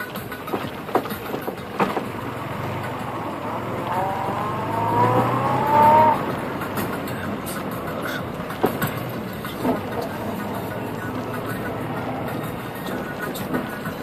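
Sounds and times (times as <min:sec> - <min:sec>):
knocks and rattles from bumps: 0:00.0 - 0:03.4
car driving on dirt track: 0:00.0 - 0:14.0
rising whine: 0:02.2 - 0:06.8.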